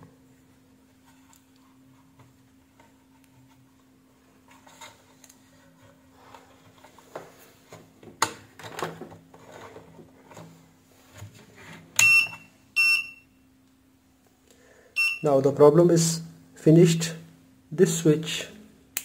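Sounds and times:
short high beep: 12.0s - 13.2s, 15.0s - 15.3s.

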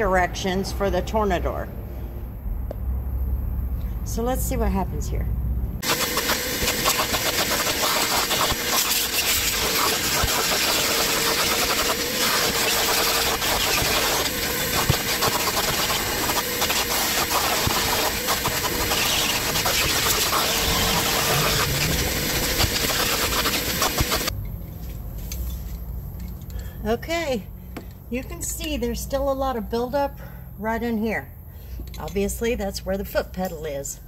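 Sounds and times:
vacuum cleaner running: 5.8s - 24.3s.

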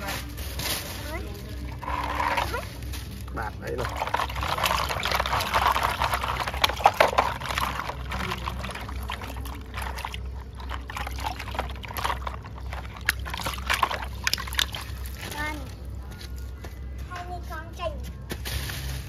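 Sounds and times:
water sloshing in a plastic basin: 1.6s - 15.9s
hands scrubbing plastic toys: 3.7s - 15.4s.

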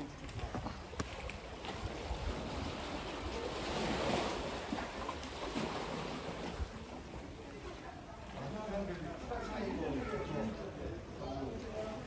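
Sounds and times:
sea waves washing on rocks: 0.0s - 9.2s.

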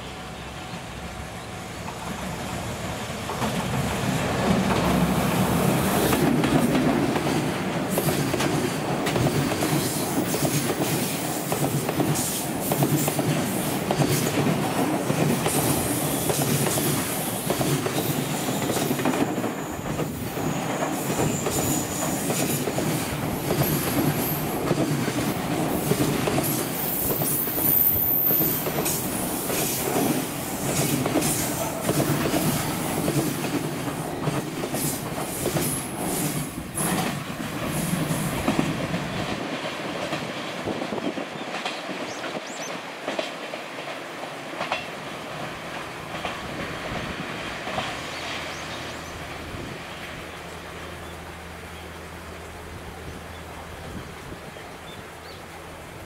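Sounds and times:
train wheels clattering over rail joints: 3.2s - 48.4s.

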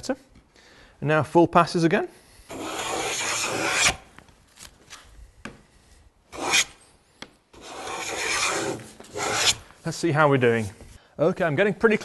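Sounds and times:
plane cutting wood shavings: 2.5s - 4.0s, 6.4s - 6.7s, 7.6s - 9.6s.

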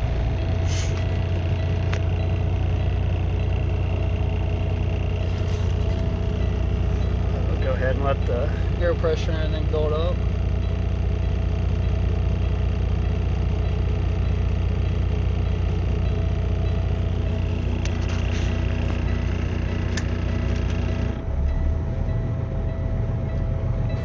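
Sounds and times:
diesel engine idling: 0.0s - 24.0s
air compressor pumping: 0.4s - 1.6s, 17.0s - 21.2s
air pressure popping off: 0.5s - 1.2s.

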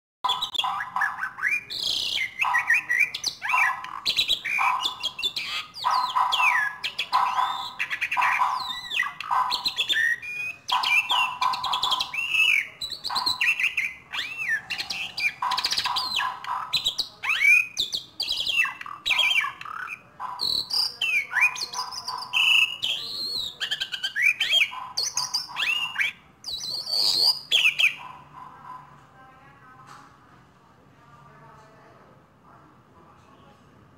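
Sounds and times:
starling singing: 0.2s - 29.0s.

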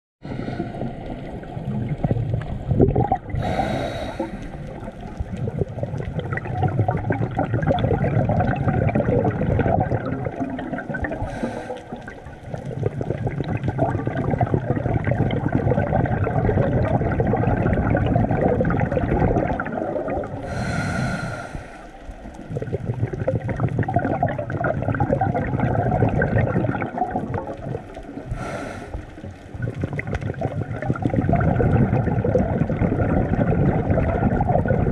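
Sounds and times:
regulator inhale hiss: 0.2s - 1.1s, 3.4s - 4.8s, 11.2s - 12.1s, 20.4s - 22.0s, 28.3s - 29.2s
bubbling exhale rush: 0.2s - 34.9s.

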